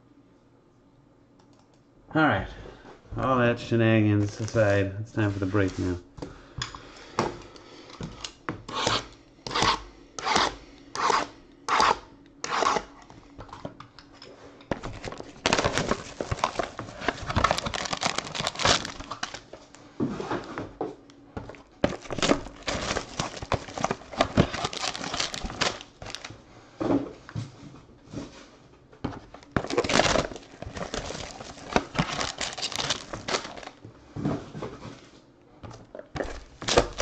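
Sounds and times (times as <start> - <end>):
plastic wrap tearing and crinkling: 14.8 - 19.7, 21.8 - 26.3, 29.4 - 33.8, 36.3 - 37.0.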